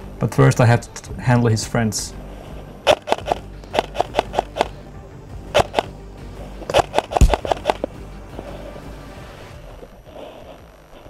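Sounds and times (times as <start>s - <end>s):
airsoft rifle shots: 2.9s - 4.7s, 6.7s - 7.9s.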